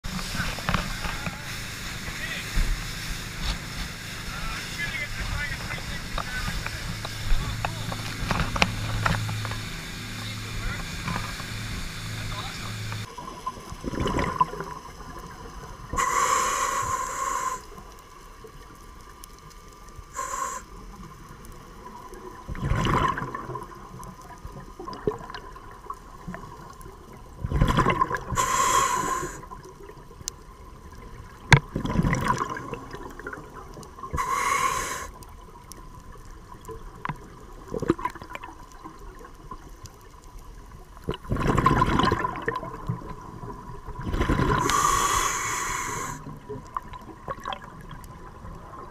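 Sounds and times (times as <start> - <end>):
exhaled bubbles rushing: 5.2 - 16.0, 21.8 - 28.6, 30.9 - 34.2, 36.6 - 39.7, 40.9 - 48.9
regulator breathing hiss: 16.0 - 17.8, 20.1 - 20.8, 28.3 - 29.5, 34.2 - 35.2, 44.6 - 46.3.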